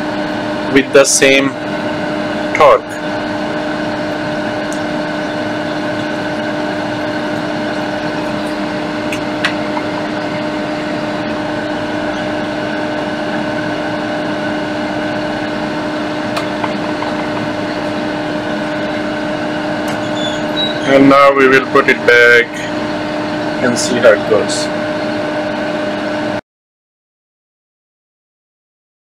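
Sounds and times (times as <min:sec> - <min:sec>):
steady machine hum with hiss: 0:00.0 - 0:26.4.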